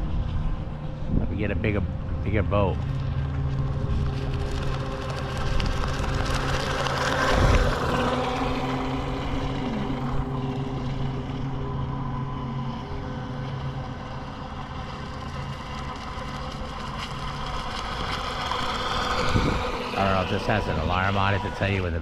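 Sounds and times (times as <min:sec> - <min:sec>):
boat motor whine: 0:00.0 - 0:22.0.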